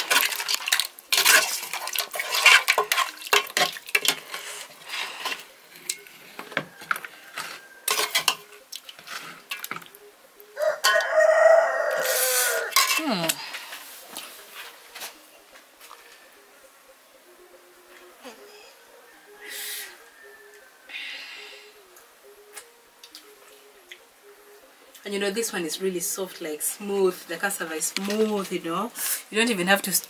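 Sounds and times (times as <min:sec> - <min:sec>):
metal spoon scraping pot: 0:00.0 - 0:06.1, 0:06.9 - 0:09.8, 0:12.7 - 0:13.3
rooster crowing: 0:06.3 - 0:08.1, 0:10.6 - 0:12.8, 0:17.5 - 0:22.0.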